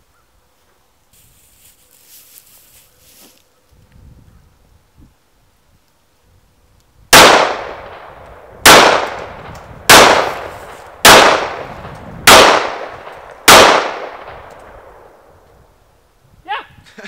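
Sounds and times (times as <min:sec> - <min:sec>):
handgun shots: 0:08.6 - 0:09.3, 0:09.9 - 0:11.6, 0:12.3 - 0:12.9, 0:13.5 - 0:14.1.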